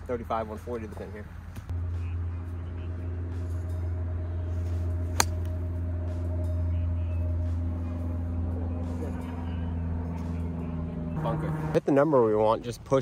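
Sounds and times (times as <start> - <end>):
low hum: 1.3 - 11.8
golf club striking ball: 5.1 - 5.7.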